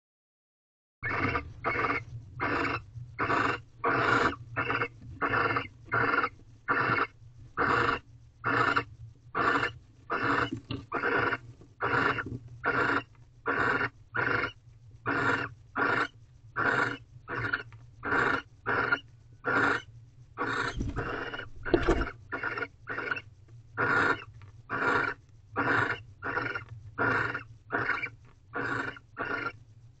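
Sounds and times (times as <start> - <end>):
barn owl hissing calls: 1.0 - 29.6
faint low hum: 1.0 - 30.0
dull low thud: 20.7 - 22.2.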